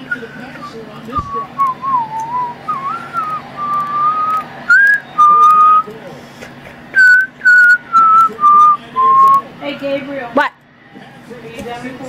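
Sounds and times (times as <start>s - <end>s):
person whistling a tune: 0.0s - 5.9s, 7.0s - 9.4s.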